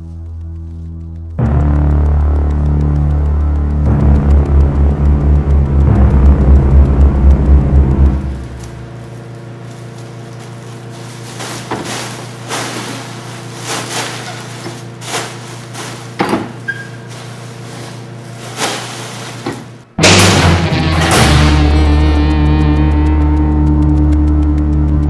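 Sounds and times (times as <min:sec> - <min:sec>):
steady low hum: 0:00.0 - 0:25.0
sharp knocks and thumps: 0:11.6 - 0:13.0, 0:13.8 - 0:16.7.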